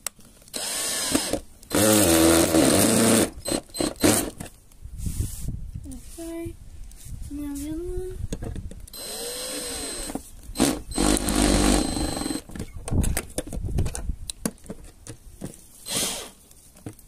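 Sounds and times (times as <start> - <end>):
electric drill driving screws: 0.5 - 4.4, 8.9 - 12.5, 15.9 - 16.4.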